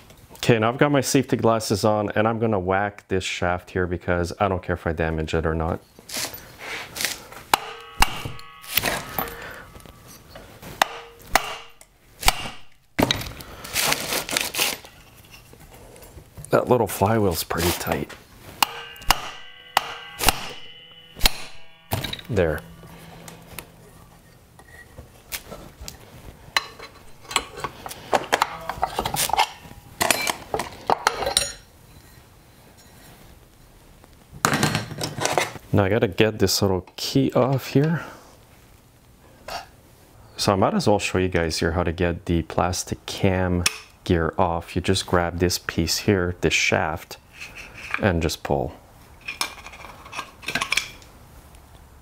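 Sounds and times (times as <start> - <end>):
hammer striking metal shaft: 7.5 - 13.2, 17.6 - 25.5, 28.4 - 28.9
metal clinking and clattering: 18.6 - 26.0.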